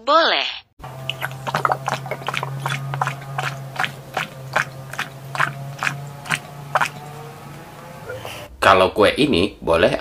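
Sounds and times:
steady low hum: 0.8s - 9.0s
person gulping a drink: 1.0s - 7.1s.

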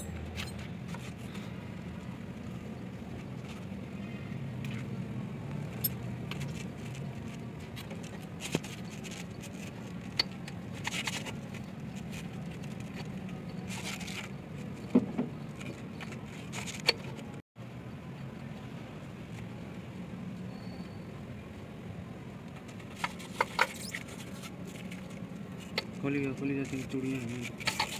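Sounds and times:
metallic clicks and scrapes: 0.0s - 1.4s, 5.5s - 17.4s, 22.5s - 27.9s.

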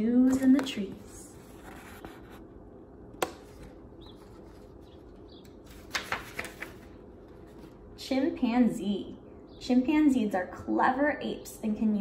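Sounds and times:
low room hum: 0.0s - 12.0s
paper rustling: 3.5s - 7.9s.

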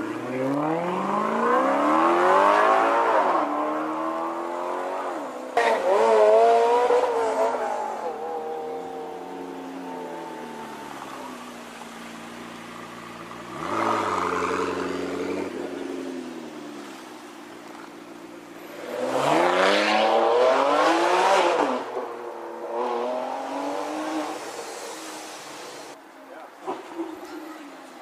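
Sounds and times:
supercar engine revving: 0.2s - 16.9s, 17.7s - 22.0s.

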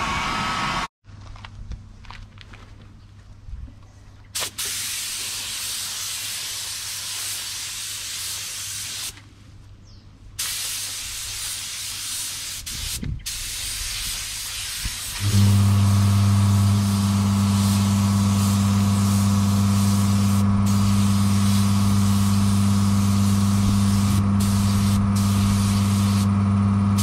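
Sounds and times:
paint spray gun hissing: 4.4s - 9.2s, 10.4s - 26.4s
low motor hum: 15.2s - 27.0s.

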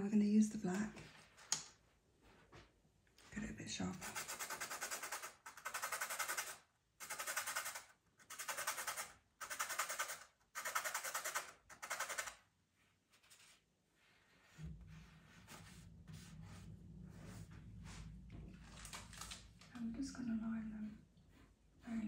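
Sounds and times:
pencil being sharpened: 4.0s - 12.4s.

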